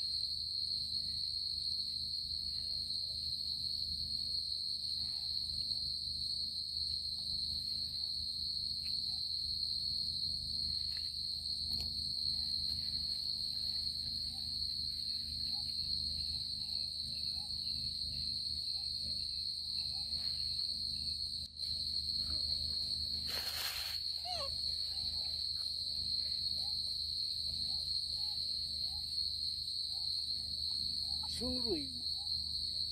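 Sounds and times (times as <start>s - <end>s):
high-pitched insect chorus: 0.0s - 32.9s.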